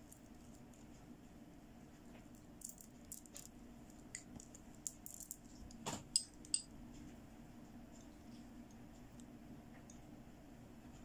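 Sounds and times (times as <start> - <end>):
plastic beads clicking: 4.2 - 5.4.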